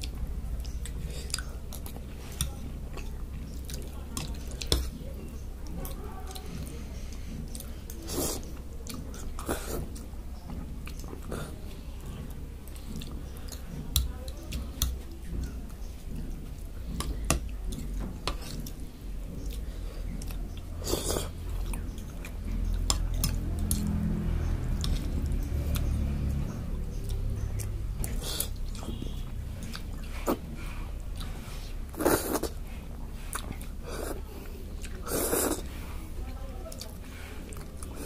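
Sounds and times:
person chewing and slurping noodles: 16.4 - 26.4, 27.1 - 36.0.

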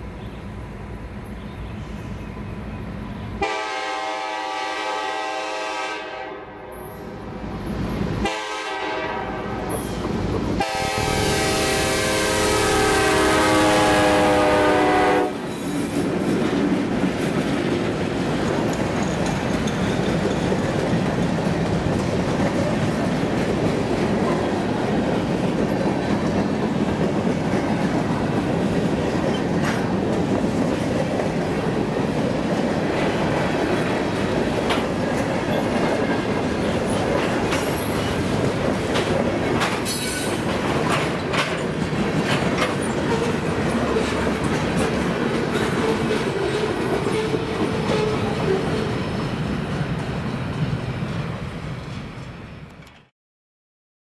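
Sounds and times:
train wheels rumbling on rails: 0.0 - 53.1
locomotive horn: 3.4 - 7.0, 8.2 - 9.8, 10.6 - 15.4
rail joint clicks: 9.6 - 10.6, 15.4 - 53.1.

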